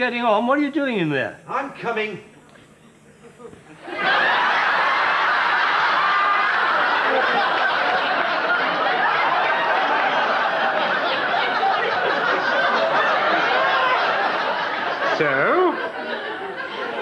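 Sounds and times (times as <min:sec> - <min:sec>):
audience laughing: 0:03.7 - 0:17.0.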